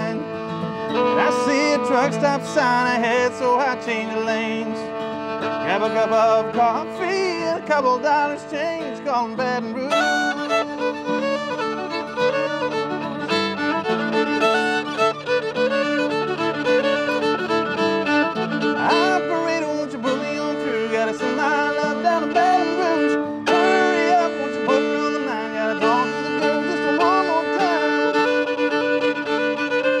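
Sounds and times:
acoustic guitar strumming: 0.0 - 30.0
fiddle playing: 0.0 - 30.0.

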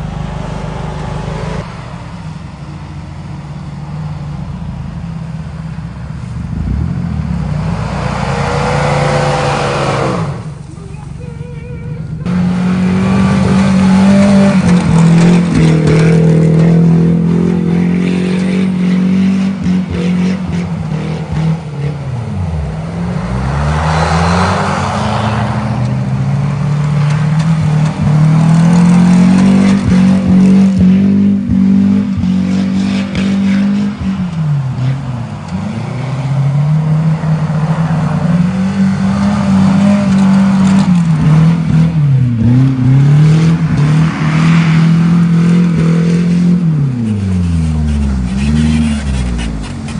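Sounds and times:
suv engine revving hard: 6.5 - 10.6, 12.2 - 22.0, 22.6 - 26.1.

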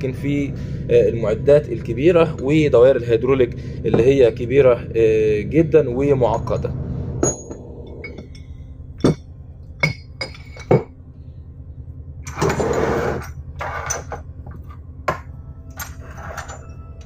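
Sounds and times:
steady low hum: 0.0 - 17.0
metal scraping across desk: 12.3 - 14.8, 15.9 - 16.8
metal fittings clinking on wood: 12.3 - 16.8.

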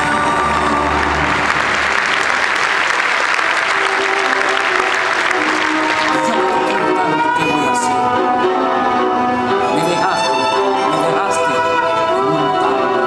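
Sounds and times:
audience applauding: 0.0 - 7.8
backing music: 0.0 - 13.0.

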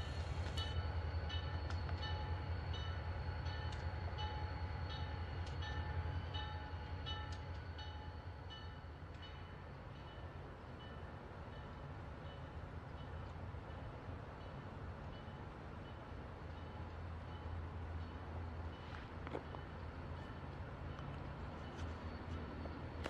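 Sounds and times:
diesel locomotive rumbling: 0.0 - 23.0
locomotive bell ringing: 0.6 - 13.2.

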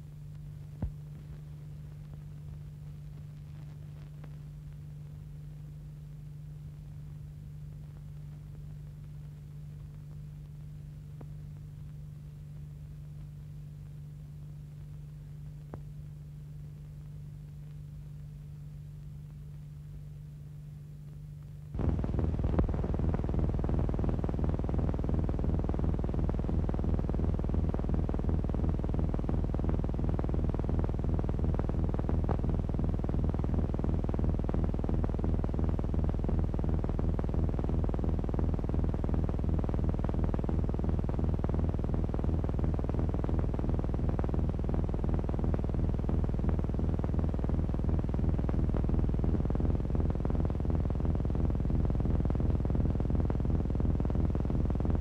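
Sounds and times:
low synthesizer drone: 21.7 - 55.0.

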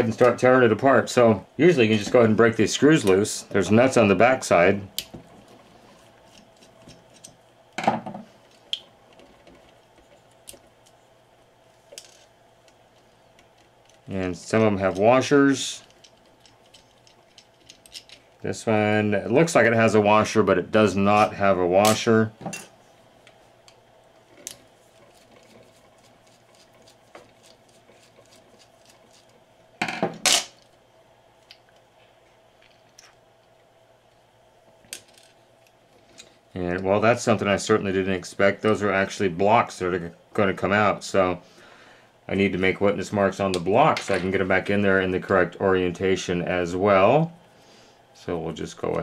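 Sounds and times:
small metal parts clinking: 15.8 - 18.2.

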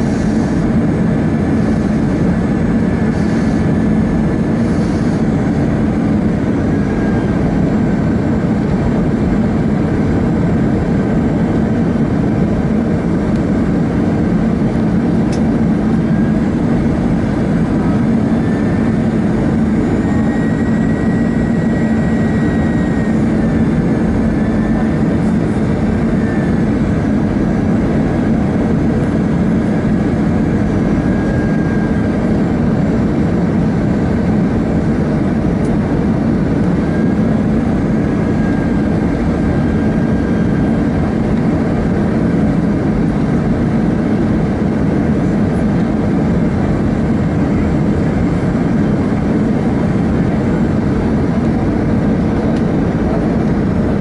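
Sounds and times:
jet engine and airflow drone: 0.0 - 54.0.

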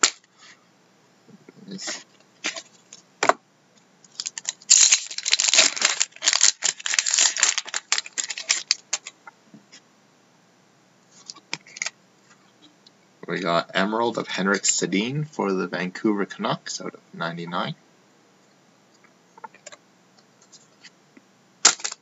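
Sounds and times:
foil wrapper crackling: 4.1 - 9.0.

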